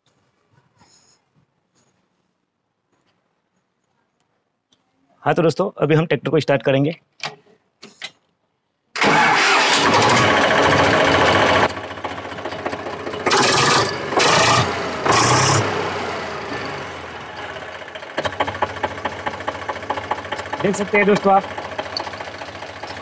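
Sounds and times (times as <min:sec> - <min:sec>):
engine throttle blips: 0:09.0 - 0:23.0
tractor diesel engine starting: 0:09.0 - 0:23.0.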